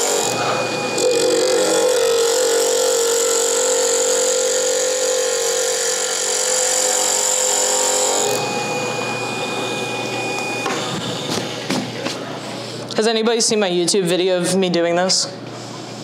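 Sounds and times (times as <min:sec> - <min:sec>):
wood lathe humming: 0:00.0 - 0:11.7.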